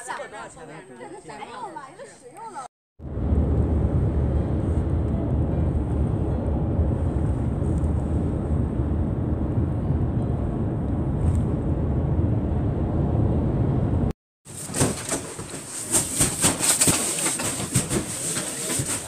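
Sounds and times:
car cabin road and engine rumble: 3.1 - 14.1.

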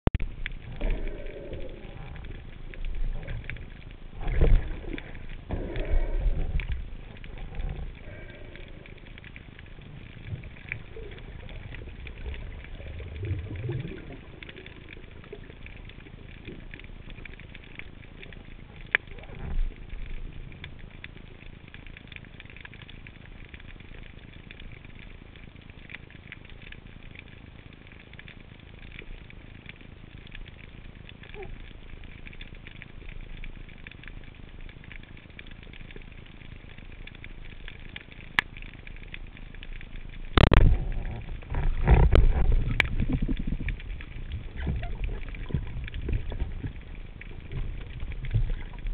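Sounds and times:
underwater fine crackling: 0.0 - 48.9.

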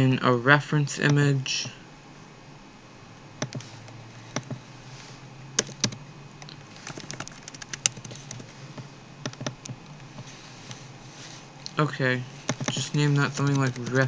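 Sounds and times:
computer mouse clicks: 3.4 - 3.7, 4.3 - 4.6, 5.6 - 8.4, 9.2 - 10.8, 12.5 - 14.0
keyboard key taps: 12.5 - 14.0.

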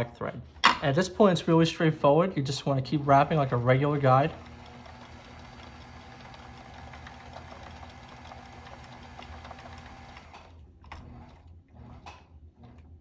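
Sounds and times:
rod-wrapping machine humming: 3.0 - 13.0.

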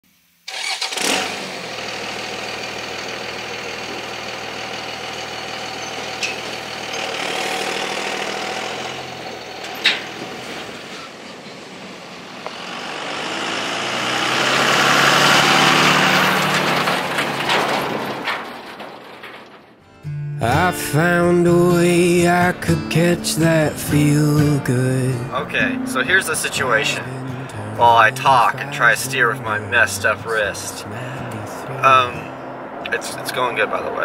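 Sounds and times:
pickup truck engine: 0.5 - 34.0
metal clank: 5.5 - 7.2, 9.3 - 11.6, 16.1 - 19.9
ground noise: 9.3 - 34.0.

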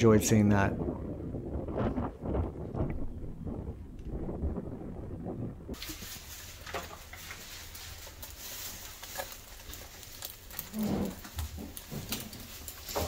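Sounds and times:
food sizzling with pops: 5.7 - 13.0.

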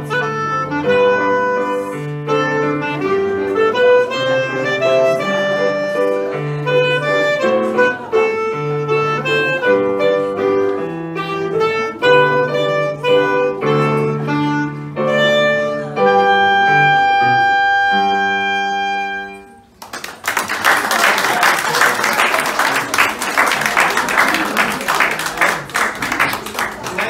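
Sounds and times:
clarinet: 0.0 - 19.8
digital piano: 0.0 - 19.8
audience applauding: 19.7 - 27.0.

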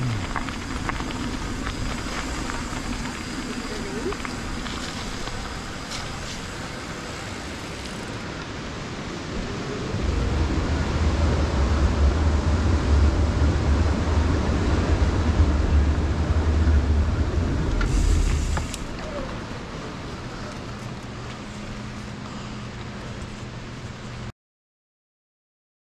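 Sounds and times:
bike tyres crunching on gravel: 0.0 - 8.6, 17.2 - 23.8
heavy low rumble: 0.0 - 24.3
wind buffeting microphone: 8.5 - 21.1.

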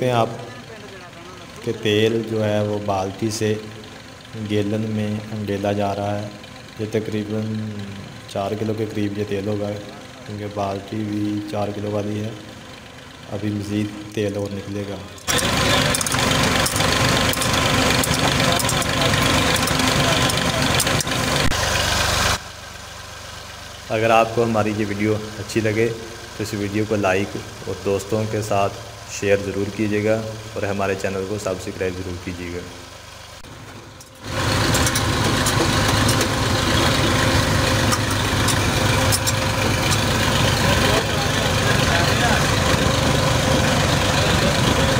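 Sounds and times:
oil expeller mechanical clatter: 0.0 - 22.4, 23.9 - 32.8, 33.4 - 44.9
engine running: 0.0 - 44.9
machine humming: 33.4 - 44.9.

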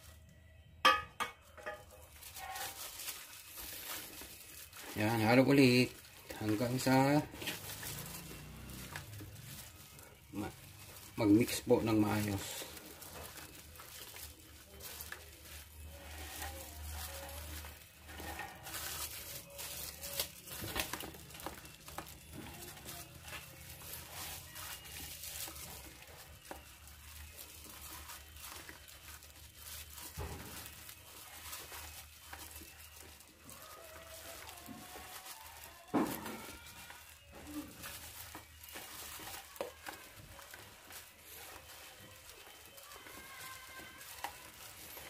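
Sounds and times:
whisk stirring batter in bowl: 37.5 - 45.0.

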